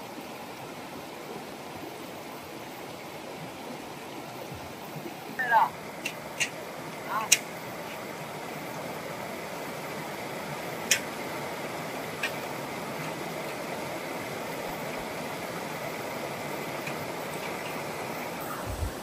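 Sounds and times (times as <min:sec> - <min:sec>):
stream running over rocks: 0:00.0 - 0:19.0
sharp click: 0:07.3 - 0:07.5.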